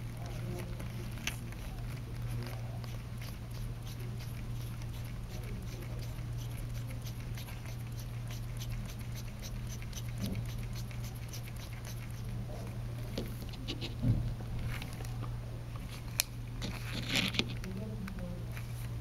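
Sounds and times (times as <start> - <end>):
small ticks and rubbing: 0.0 - 14.0
steady low hum: 0.0 - 19.0.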